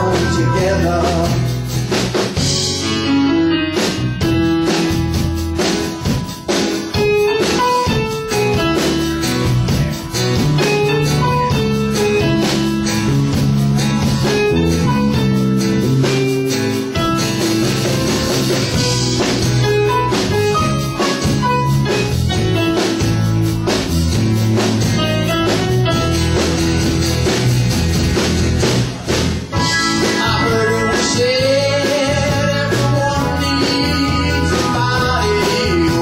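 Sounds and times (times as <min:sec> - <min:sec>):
drum kit: 0:00.0 - 0:36.0
electric bass: 0:00.0 - 0:36.0
electric guitars: 0:00.0 - 0:36.0.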